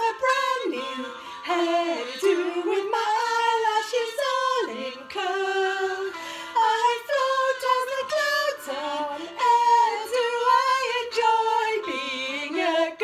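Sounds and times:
women singing together: 0.0 - 13.0.

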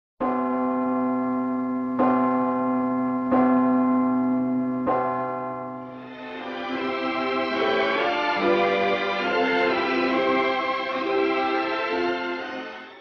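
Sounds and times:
large bell tolling: 0.2 - 13.0
music: 5.7 - 13.0.

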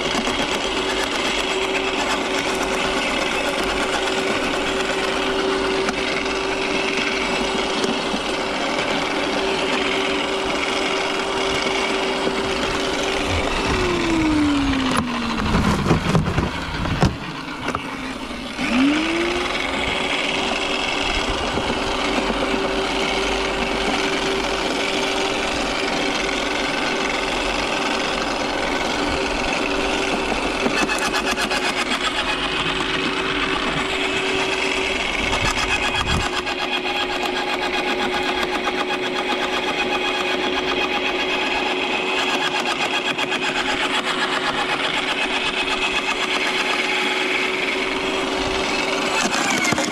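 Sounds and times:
garden shredder motor whining: 0.0 - 49.9
branches being shredded: 0.1 - 16.9.

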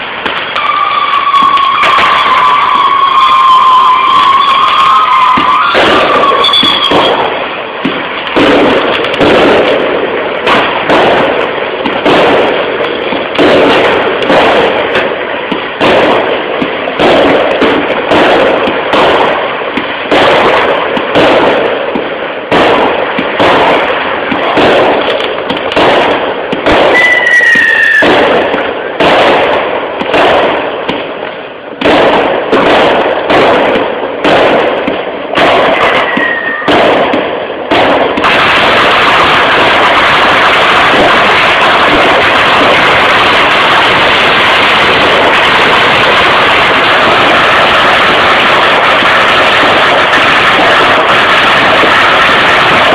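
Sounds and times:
fireworks bangs and crackling: 0.0 - 52.9
falling firework whistle: 0.3 - 7.4, 26.7 - 28.9, 35.7 - 36.8.

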